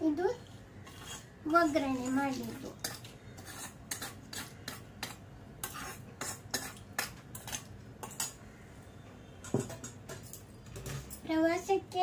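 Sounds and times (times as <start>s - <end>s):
metal ladle tapping dishes: 9.4s - 10.4s.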